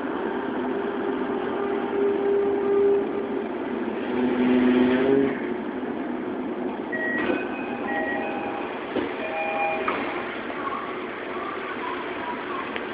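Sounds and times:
train car hum: 0:00.0 - 0:12.9
train inverter whining: 0:00.0 - 0:12.9
electronic chime tones: 0:07.0 - 0:09.9.

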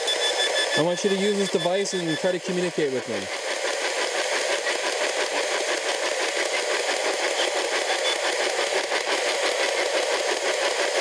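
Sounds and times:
chopping radio static: 0:00.7 - 0:10.5.

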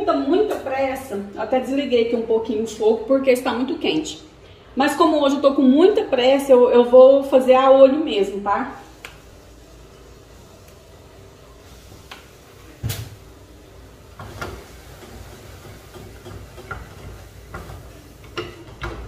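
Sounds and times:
whisk clicking against saucepan: 0:14.3 - 0:19.0
spoon knocking on saucepan: 0:15.8 - 0:19.0.

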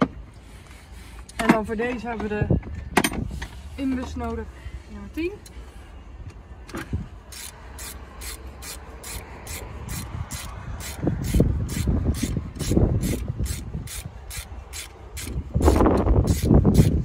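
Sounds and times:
hand ratchet clicking: 0:07.3 - 0:17.0.

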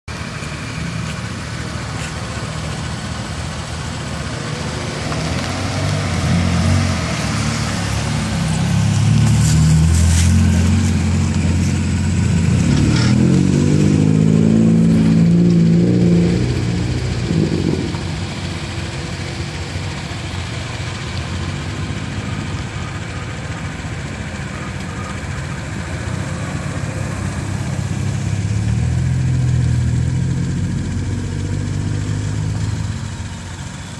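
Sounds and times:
car engines running: 0:00.1 - 0:33.9
car engine revving: 0:00.2 - 0:33.6.

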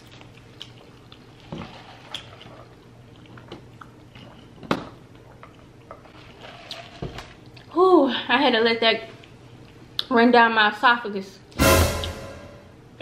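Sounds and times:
chewing with wet mouth clicks: 0:00.0 - 0:01.3.

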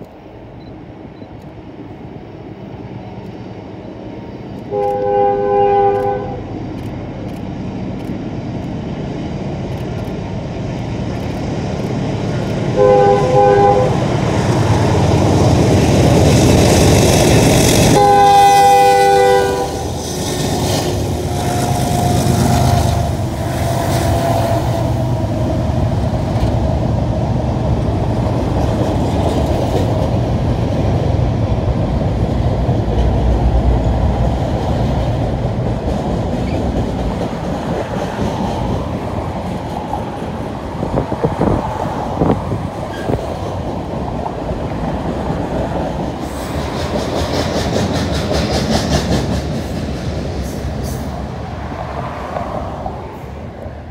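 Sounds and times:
diesel engines rumbling: 0:00.0 - 0:53.9
rolling train clatter: 0:00.0 - 0:53.9
train horn blasts: 0:04.7 - 0:06.6, 0:12.7 - 0:14.3, 0:17.9 - 0:20.0, 0:20.8 - 0:25.1.

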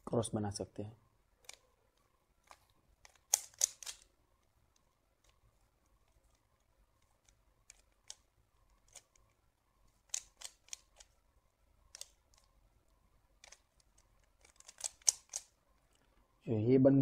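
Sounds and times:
puzzle cube clicking as turned: 0:01.4 - 0:11.2, 0:11.9 - 0:12.6, 0:13.3 - 0:15.6.

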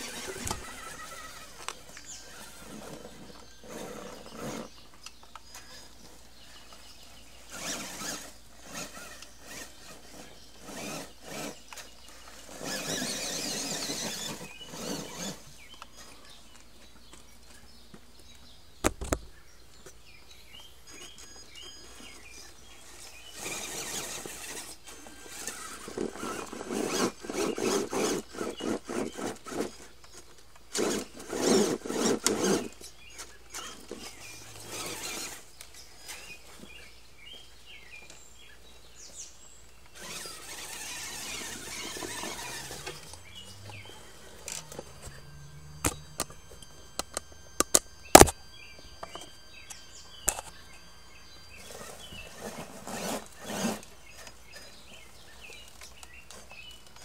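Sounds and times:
toy truck motor and gear whine: 0:00.0 - 0:57.0
tyres scrabbling on rocks: 0:07.5 - 0:17.6, 0:22.9 - 0:36.8, 0:39.9 - 0:48.4
sharp clicks and knocks: 0:18.8 - 0:20.0, 0:45.8 - 0:48.4.

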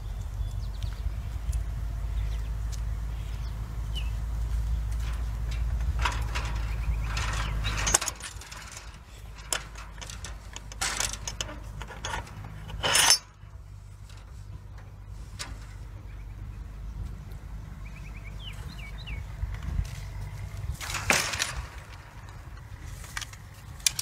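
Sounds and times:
low rumble: 0:00.0 - 0:23.8
metal gate latch clicks and scrapes: 0:04.9 - 0:16.1, 0:20.7 - 0:24.0.

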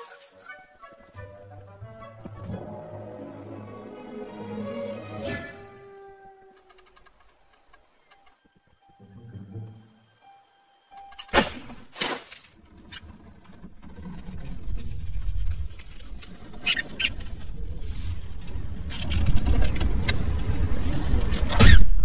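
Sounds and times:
rodent-like squeaks: 0:16.5 - 0:17.3.

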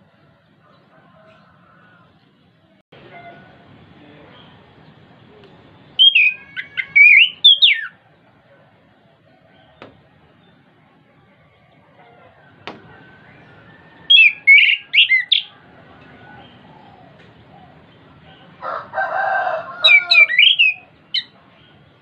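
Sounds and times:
thrush whistled song: 0:06.0 - 0:08.0, 0:12.9 - 0:15.5, 0:19.9 - 0:21.4.

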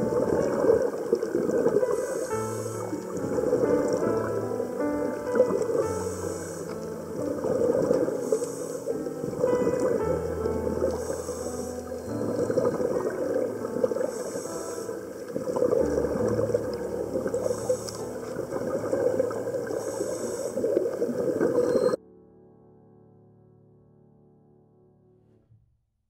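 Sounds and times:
bubbles gurgling: 0:00.0 - 0:22.0
regulator breathing: 0:01.8 - 0:03.2, 0:05.8 - 0:07.0, 0:08.1 - 0:09.2, 0:10.9 - 0:12.5, 0:14.0 - 0:15.2, 0:17.4 - 0:18.2, 0:19.7 - 0:20.8.

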